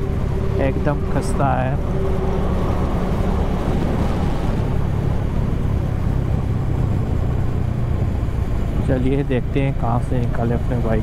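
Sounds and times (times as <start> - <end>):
motorcycle engine rumbling: 0.0 - 11.0.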